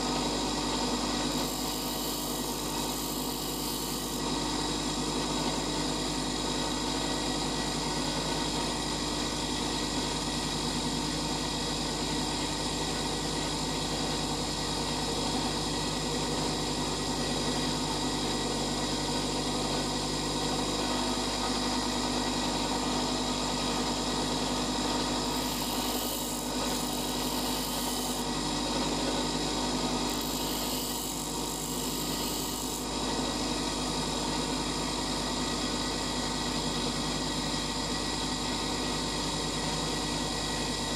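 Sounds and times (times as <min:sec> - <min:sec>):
bench grinder grinding drill bit: 0:00.0 - 0:08.9, 0:20.4 - 0:34.0.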